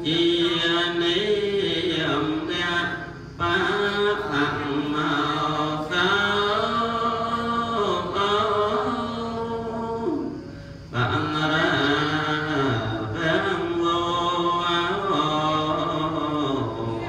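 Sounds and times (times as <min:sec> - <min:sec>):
person chanting into microphone: 0:00.0 - 0:17.0
breath: 0:10.4 - 0:10.9.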